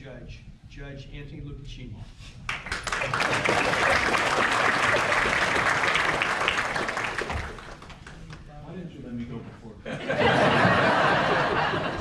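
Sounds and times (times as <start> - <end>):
audience applauding: 2.5 - 8.4.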